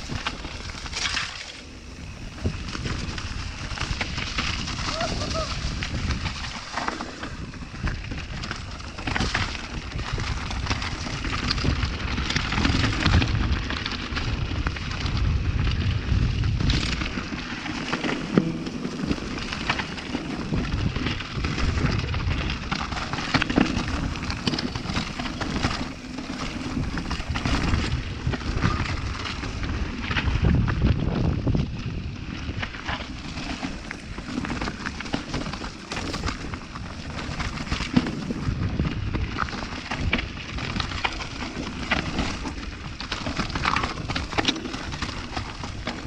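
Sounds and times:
wind on microphone: 0.0s - 46.0s
bike knocks and rattles: 16.3s - 46.0s.

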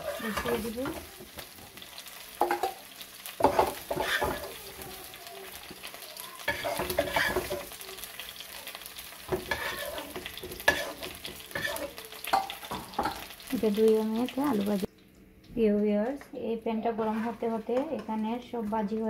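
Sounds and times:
spoon scraping a frying pan: 0.0s - 4.9s, 6.4s - 7.8s, 9.2s - 13.4s
pan sizzling: 0.0s - 19.0s.

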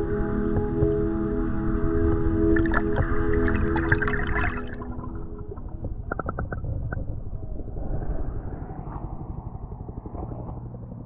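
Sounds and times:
muffled underwater rumble: 0.0s - 11.0s
rushing water: 2.0s - 7.0s
bubbles popping: 2.6s - 7.0s.

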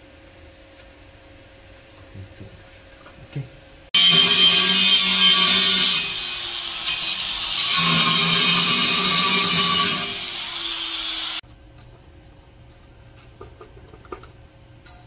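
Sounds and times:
cutting disc on steel pipe: 4.0s - 11.4s.

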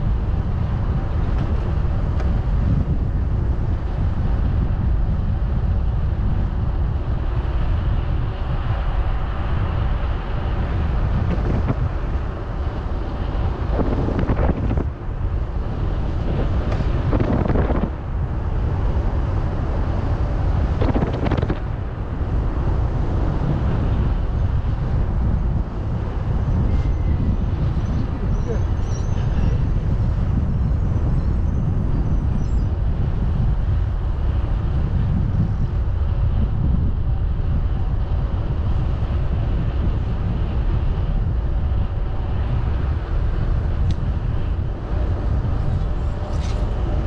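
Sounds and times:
wind buffeting microphone: 0.0s - 47.0s.

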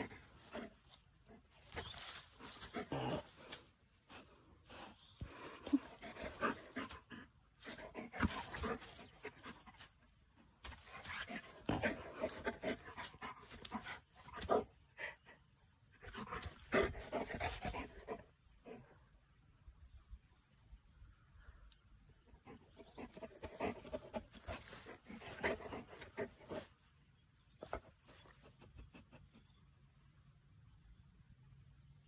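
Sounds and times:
grass rustling: 0.0s - 10.0s, 23.0s - 26.8s
dog sniffing and panting: 0.0s - 15.2s, 16.1s - 18.8s, 22.5s - 26.8s, 27.5s - 29.7s.

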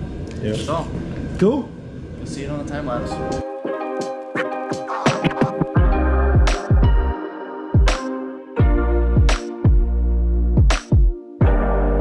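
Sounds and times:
electronic music: 3.0s - 12.0s
deep falling bass: 5.8s - 7.2s, 11.4s - 12.0s.

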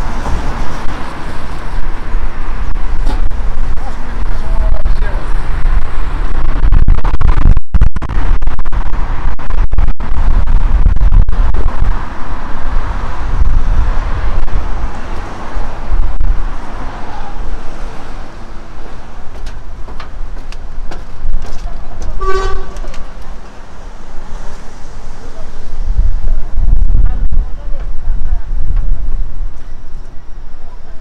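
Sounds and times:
road traffic: 0.0s - 31.0s
wind buffeting microphone: 0.0s - 31.0s
short horn toot: 22.1s - 23.1s.

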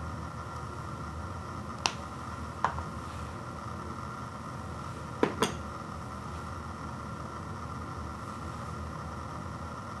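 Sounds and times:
steady background hum: 0.0s - 10.0s
bowl and carton knocking on table: 5.2s - 5.6s.

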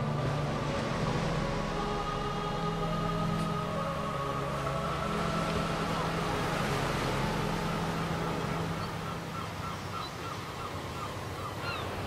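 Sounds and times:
sea surf: 0.0s - 12.0s
birds calling: 8.5s - 12.0s.

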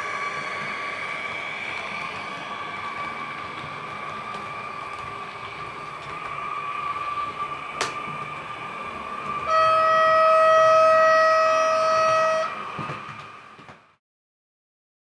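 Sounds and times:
model train electric whine: 0.0s - 14.0s
train horn note: 9.4s - 12.7s.

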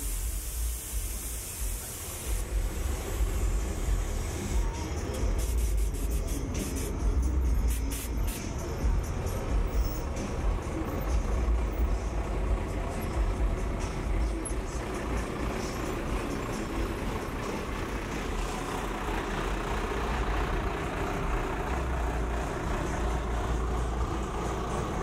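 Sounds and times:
pickup truck engines rumbling: 0.0s - 25.0s.

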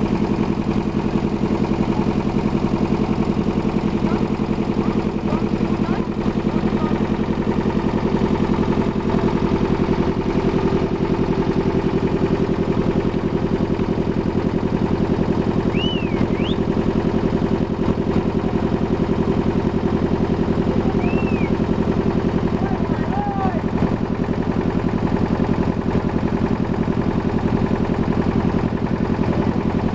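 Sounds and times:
boat engine chugging: 0.0s - 29.9s.

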